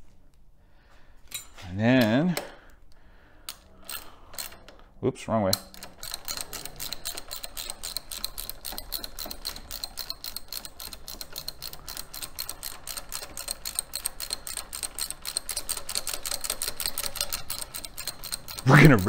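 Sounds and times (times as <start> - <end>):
ratchet wrench clicking: 3.5 - 4.8, 5.5 - 19.0.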